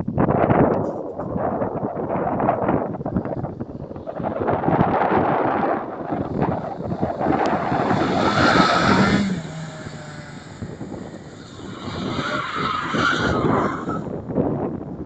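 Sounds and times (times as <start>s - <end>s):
car engine at high revs: 4.1s - 14.2s
tyres squealing: 6.1s - 14.1s.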